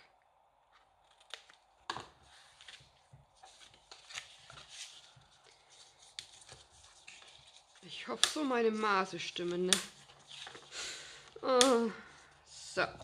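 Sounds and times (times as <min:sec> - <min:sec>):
paper rustling: 0:00.8 - 0:11.9
scissors snipping cardstock: 0:08.1 - 0:08.6, 0:09.5 - 0:09.9.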